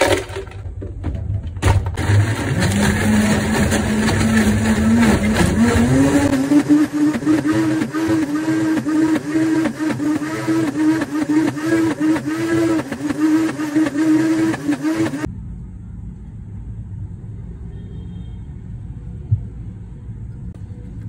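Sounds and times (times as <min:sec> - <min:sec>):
blender motor under load: 0:02.0 - 0:15.3.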